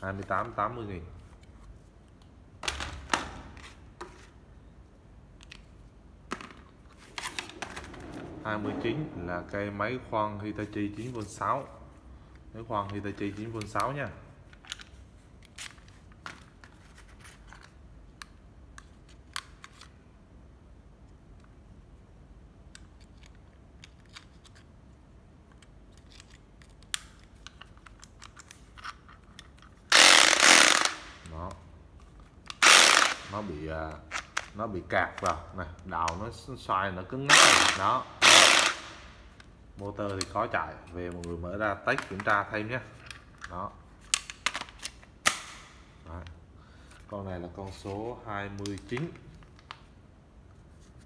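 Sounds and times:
plastic clicks of drills handled: 25.5 - 31.0, 37.3 - 38.8
cordless drill clicks: 29.9 - 31.0, 32.5 - 33.3, 37.3 - 38.9.

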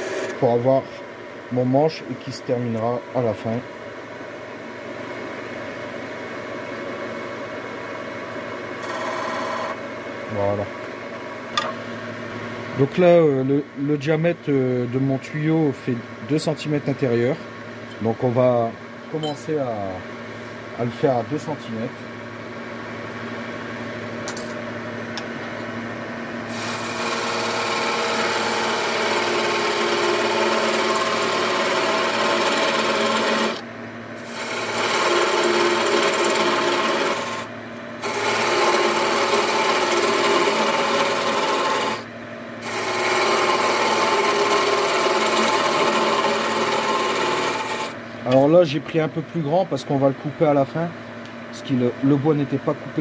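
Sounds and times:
lathe motor hum: 8.8 - 9.8, 26.4 - 48.5
tool shaving wood on lathe: 26.5 - 33.6, 34.2 - 48.0.

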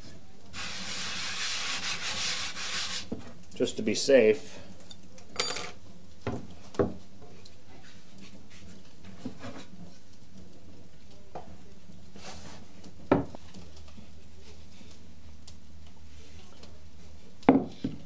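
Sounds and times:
wooden knocks on worktop: 13.1 - 13.4, 17.5 - 18.0.

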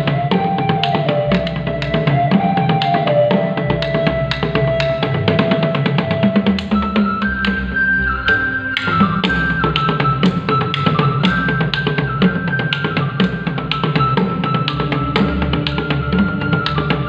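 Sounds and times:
fast wooden drumming: 0.0 - 17.0
high held melody: 0.0 - 17.0.

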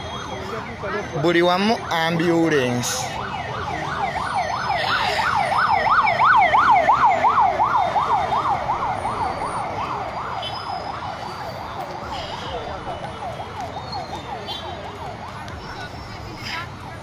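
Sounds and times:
ambulance siren yelping: 0.0 - 16.0.

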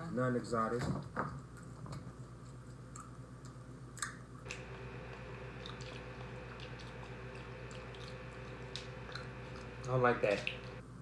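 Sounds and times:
chewing and mouth clicks: 2.4 - 10.8
steady hum: 4.4 - 11.0.

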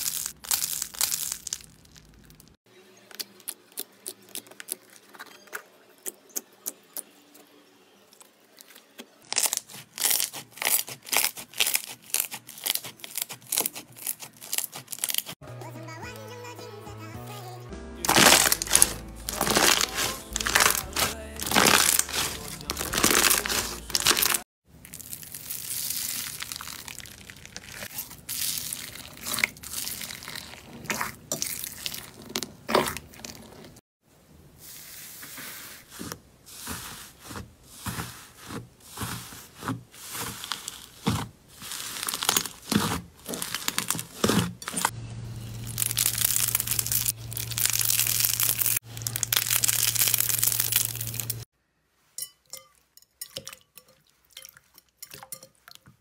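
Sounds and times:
slime crackling: 0.0 - 5.2, 9.3 - 15.4, 18.1 - 33.8, 35.9 - 44.9, 45.6 - 51.5
slime squishing: 0.0 - 6.8, 8.6 - 15.4, 18.1 - 33.8, 34.7 - 44.9, 45.6 - 51.4
slime popping: 18.1 - 33.4, 45.8 - 51.4.

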